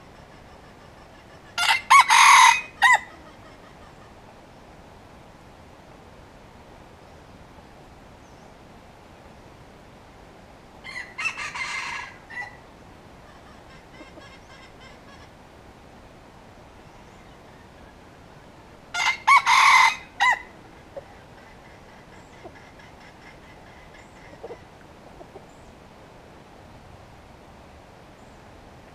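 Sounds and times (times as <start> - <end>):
rooster crowing: 1.6 - 3.2, 10.8 - 12.6, 18.9 - 20.6.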